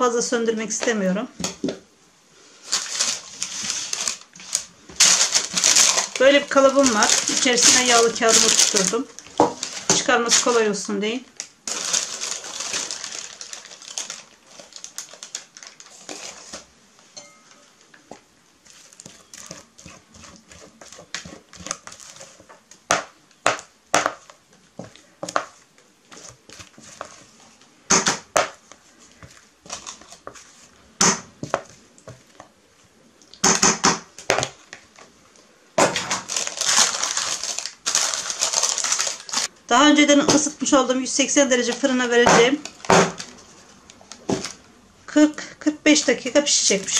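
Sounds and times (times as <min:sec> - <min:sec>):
parchment paper rustling: 0:02.5 - 0:16.8, 0:17.7 - 0:22.7, 0:24.1 - 0:27.8, 0:28.4 - 0:32.5, 0:35.9 - 0:39.5
spatula scraping a mixing bowl: 0:18.8 - 0:22.5.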